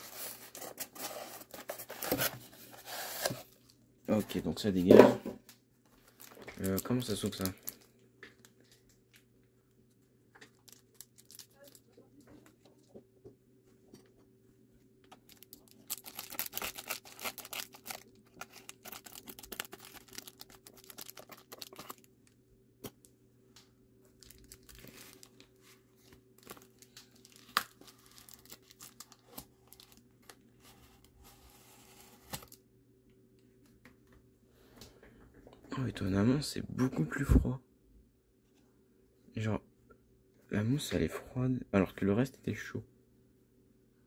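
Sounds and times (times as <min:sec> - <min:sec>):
foil packaging crinkling and tearing: 0:06.0 - 0:07.9, 0:10.5 - 0:11.9, 0:15.2 - 0:22.1, 0:24.2 - 0:30.4.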